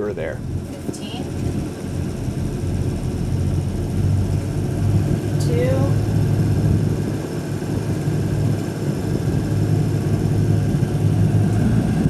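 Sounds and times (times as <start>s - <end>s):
diesel boat engine humming: 0.0s - 12.0s.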